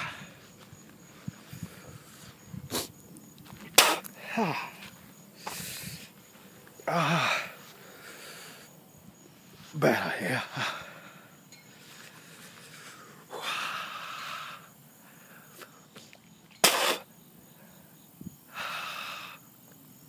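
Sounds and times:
man exhaling hard: 4.1 - 4.8, 18.5 - 19.4.

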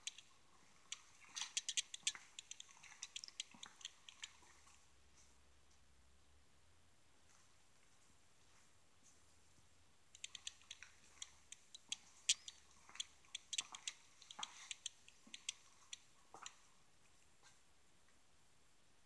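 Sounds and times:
sharp high clicks and ticks: 0.0 - 4.5, 10.1 - 16.6.

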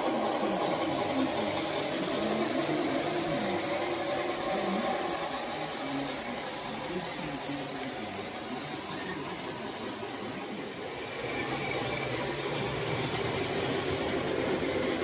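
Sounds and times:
model train motor whirring: 0.0 - 15.0
wheels rolling on track: 0.0 - 15.0.

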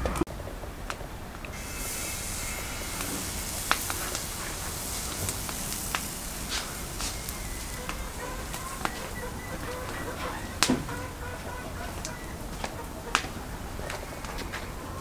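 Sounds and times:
sharp crackles and pops: 0.8 - 15.0
batter sizzling on griddle: 1.5 - 12.7.

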